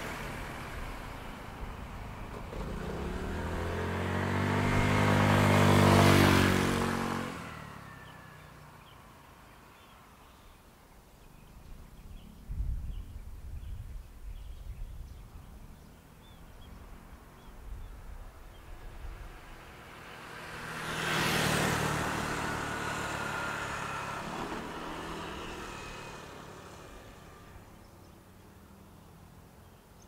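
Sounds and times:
car driving past: 0.0 - 8.8, 18.5 - 28.8.

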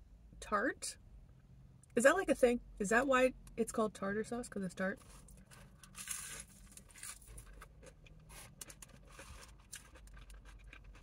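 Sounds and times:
low steady hum: 0.0 - 11.0
chewing crisp fried food: 5.5 - 11.0.

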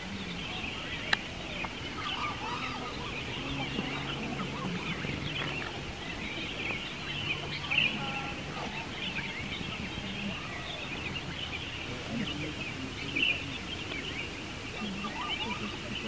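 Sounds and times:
birds chirping: 0.0 - 16.0
faint low hum: 0.0 - 16.0.

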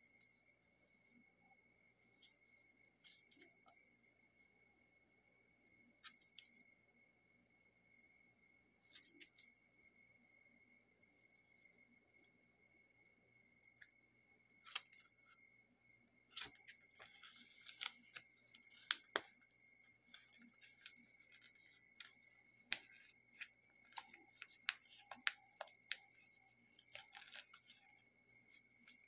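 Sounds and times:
paper pages rustling: 8.9 - 9.5, 16.4 - 29.0.

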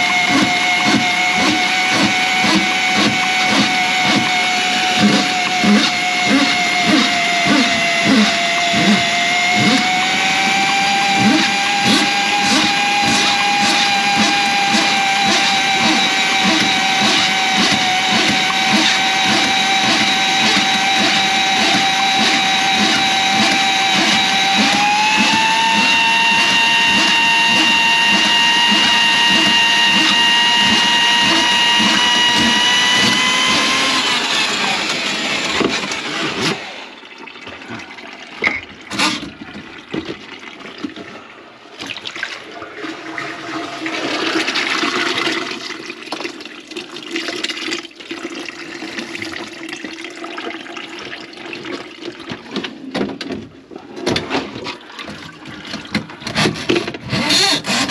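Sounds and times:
spinning cable knocking: 0.0 - 34.2
drain snake motor whining: 0.0 - 36.6.

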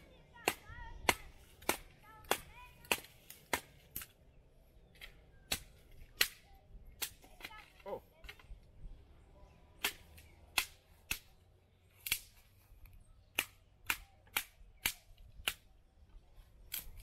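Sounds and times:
dry twigs snapping: 1.6 - 4.2, 12.0 - 15.7, 16.6 - 17.0.

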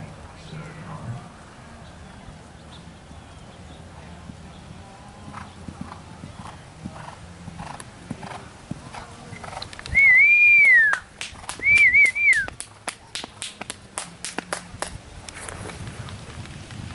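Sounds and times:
person whistling loudly: 9.9 - 11.0, 11.6 - 12.5
hand claps: 10.6 - 15.0.

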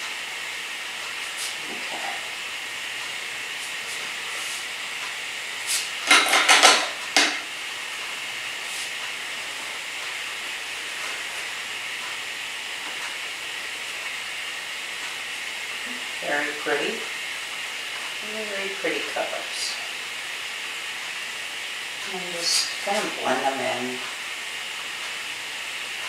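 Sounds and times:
sharp knocks and clatters: 6.0 - 7.5.

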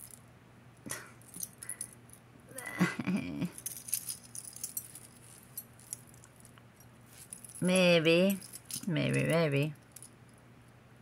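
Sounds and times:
metal jewelry chains clinking: 0.0 - 0.2, 0.9 - 2.2, 3.4 - 10.4.

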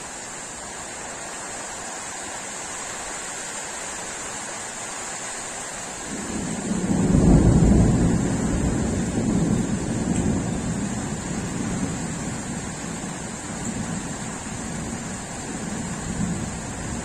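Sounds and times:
rolling thunder: 6.1 - 17.0.

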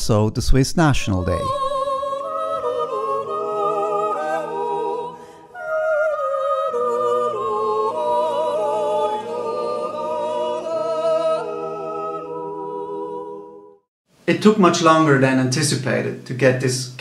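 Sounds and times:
voices singing long notes: 0.1 - 13.8.

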